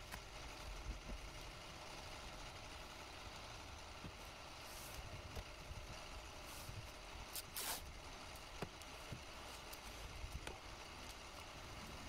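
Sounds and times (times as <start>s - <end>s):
soft tape rustles: 4.0s - 12.0s.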